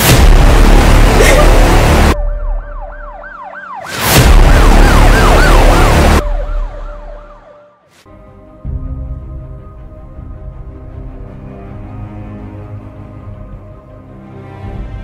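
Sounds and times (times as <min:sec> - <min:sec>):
loud bursts of noise: 0:00.0 - 0:02.2
siren wailing: 0:02.1 - 0:07.8
sombre music with held tones: 0:06.7 - 0:15.0.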